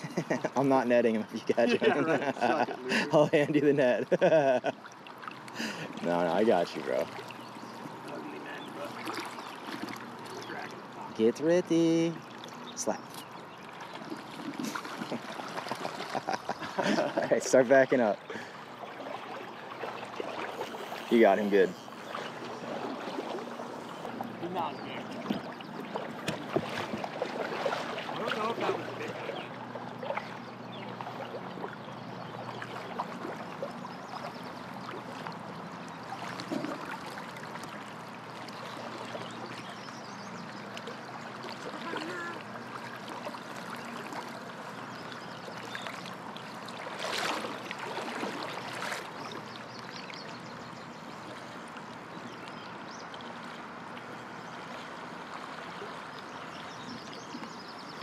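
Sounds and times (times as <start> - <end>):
river current rushing: 14.0 - 31.5, 46.2 - 49.2
knocks on boat: 25.2 - 27.8.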